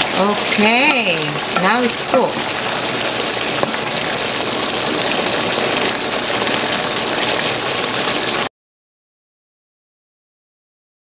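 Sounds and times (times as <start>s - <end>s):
curry sizzling and bubbling: 0.0s - 8.5s.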